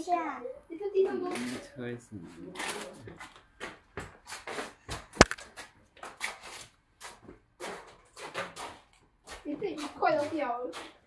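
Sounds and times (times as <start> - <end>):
sharp click: 5.2 - 5.4.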